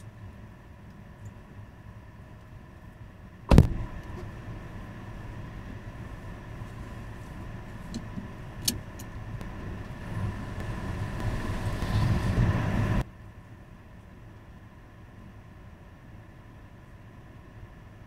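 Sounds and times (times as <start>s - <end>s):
low rumble: 0.0s - 13.1s
car engine hum: 0.0s - 18.0s.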